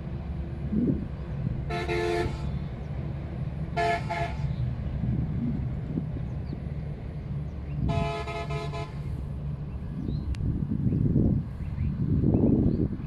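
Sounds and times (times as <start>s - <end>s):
low rumble: 0.0s - 13.0s
train horn: 1.7s - 2.6s, 3.7s - 4.6s, 7.8s - 9.1s.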